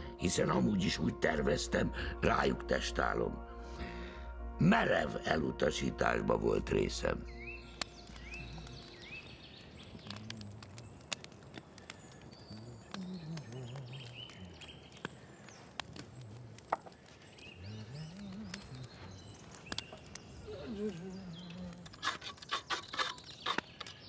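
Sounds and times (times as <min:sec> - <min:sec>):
small birds chirping: 0:06.8 - 0:24.0
sharp clicks and crackles: 0:07.7 - 0:24.0
low indistinct murmuring: 0:08.0 - 0:23.0.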